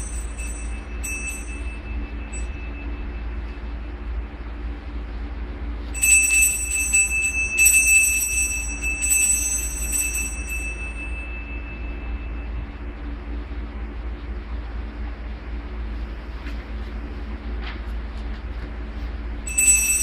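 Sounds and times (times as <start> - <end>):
altar bells jingling: 0.0 - 3.0, 6.0 - 12.4, 19.5 - 20.0.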